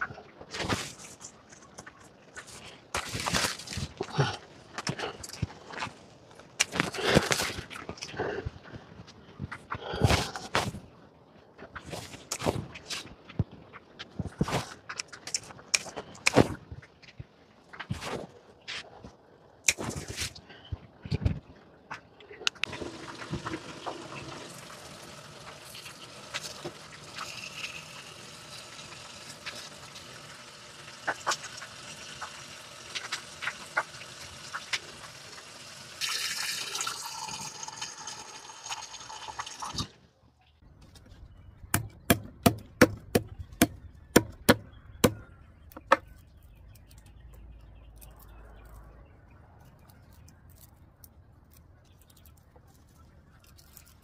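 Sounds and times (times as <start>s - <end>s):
leafy vines rustling: 0.0s - 21.7s, 45.6s - 54.0s
tap water running into sink: 22.7s - 39.8s.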